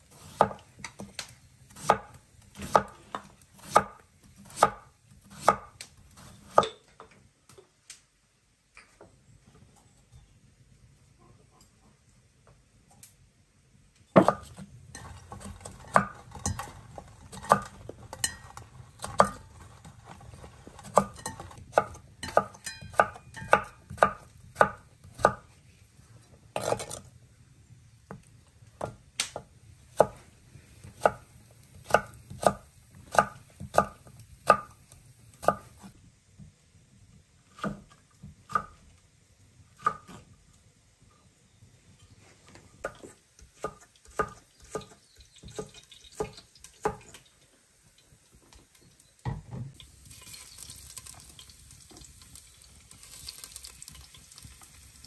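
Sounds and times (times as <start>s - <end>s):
knife chopping on cutting board: 0.2s - 1.1s, 1.8s - 6.7s.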